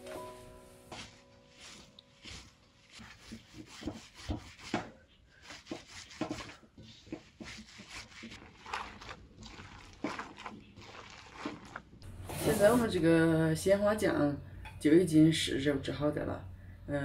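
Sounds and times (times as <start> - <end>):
hands rubbing petals in bowl: 0.8 - 4.8, 5.4 - 13.0.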